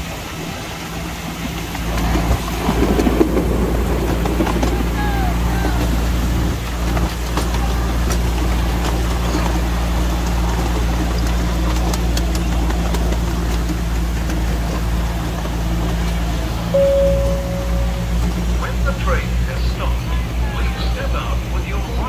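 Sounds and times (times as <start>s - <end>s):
miniature locomotive engine running: 0.0s - 16.7s.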